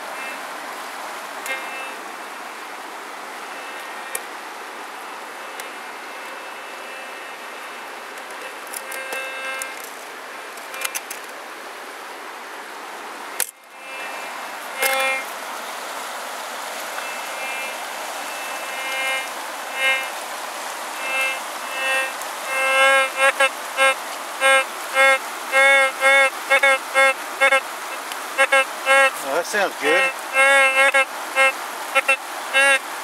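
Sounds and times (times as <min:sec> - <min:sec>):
river water rushing: 0:00.0 - 0:33.0
metal detector beeps: 0:01.4 - 0:02.0, 0:08.4 - 0:09.8, 0:14.8 - 0:15.2, 0:18.3 - 0:20.1, 0:21.0 - 0:27.6, 0:28.4 - 0:32.8.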